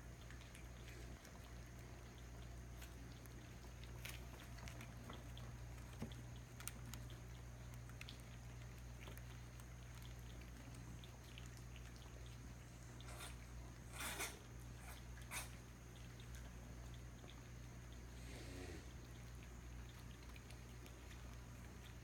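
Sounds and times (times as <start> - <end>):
steady low hum: 0.0 - 22.0
kittens scampering on paper: 0.2 - 16.5.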